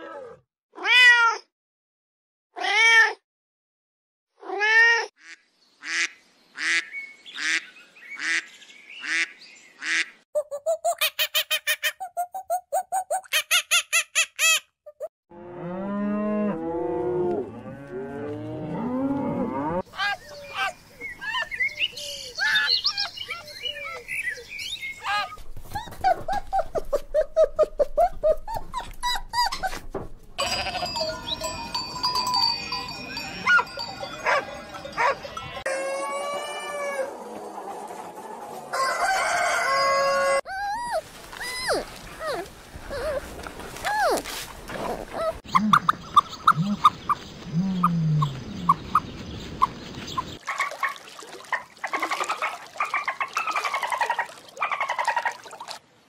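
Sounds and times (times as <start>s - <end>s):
sheep bleating: 30.4s - 31.2s
dog barking: 33.5s - 35.3s.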